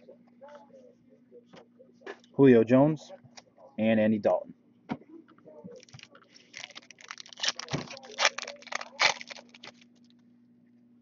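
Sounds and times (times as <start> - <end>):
foil wrapper crinkling: 5.8 - 10.1.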